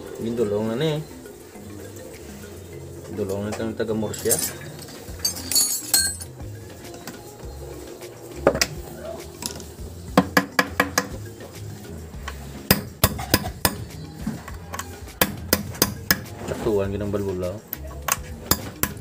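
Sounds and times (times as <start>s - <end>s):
tools clinking on metal: 4.1s - 6.4s.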